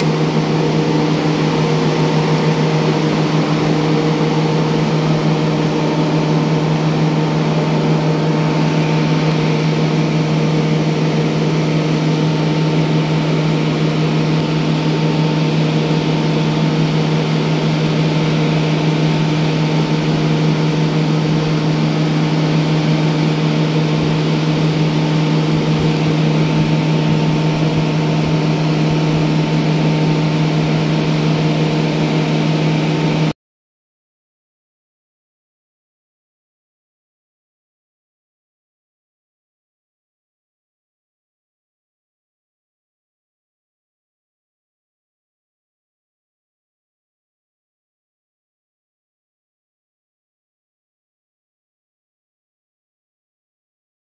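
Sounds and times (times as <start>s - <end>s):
machine drone low hum: 0.0s - 33.4s.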